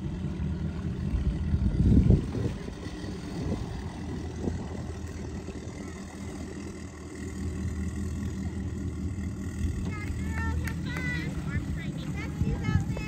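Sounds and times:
boat engine idling: 0.0s - 13.0s.

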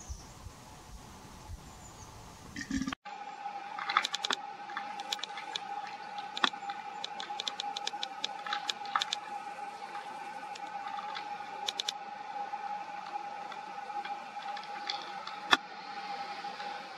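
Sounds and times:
faint steady tone: 2.6s - 16.9s.

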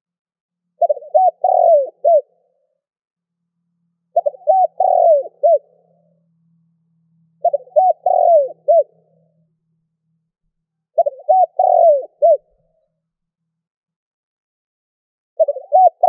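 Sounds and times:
dove cooing: 0.8s - 2.4s, 4.1s - 5.8s, 7.4s - 9.3s, 10.9s - 12.6s, 15.4s - 16.0s.

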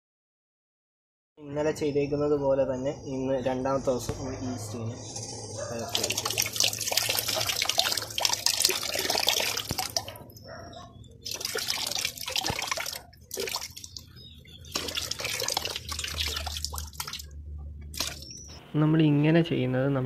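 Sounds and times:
water pouring into basins: 5.7s - 10.3s, 11.2s - 18.4s.

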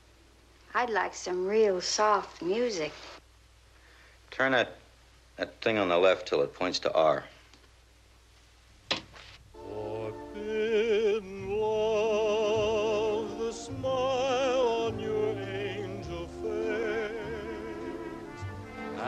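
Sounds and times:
operatic singing: 9.6s - 19.0s
orchestral accompaniment: 9.6s - 19.0s.

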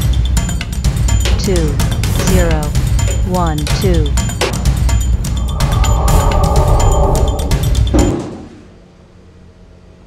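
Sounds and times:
background music with steady beat: 0.0s - 8.2s
shimmering sci-fi transporter effect: 5.0s - 8.0s.

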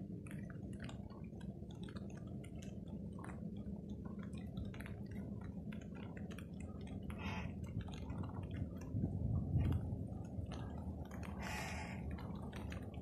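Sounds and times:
small ticks: 0.0s - 13.0s
wind rumble on microphone: 2.9s - 13.0s.

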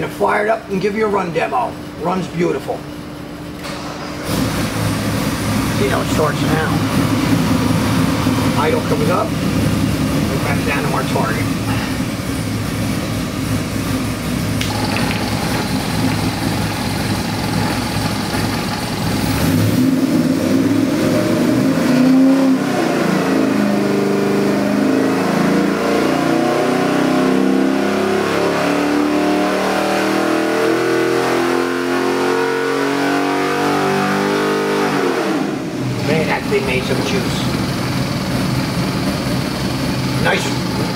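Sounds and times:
engine revving on dyno: 3.6s - 40.9s.

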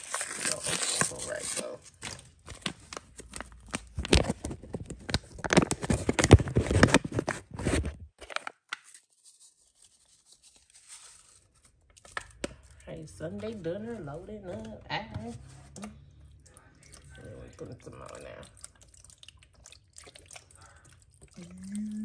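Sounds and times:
paper packet tearing and crinkling: 0.0s - 12.4s.

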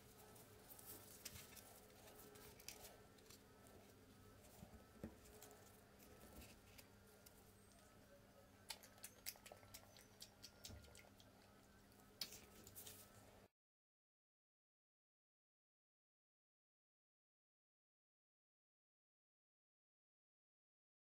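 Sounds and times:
faint steady hum: 0.0s - 13.5s.

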